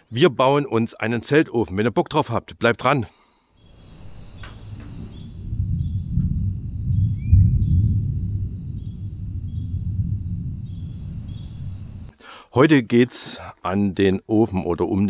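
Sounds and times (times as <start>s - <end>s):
faint high chirps: 3.6s - 12.1s
low noisy rumble: 4.0s - 12.1s.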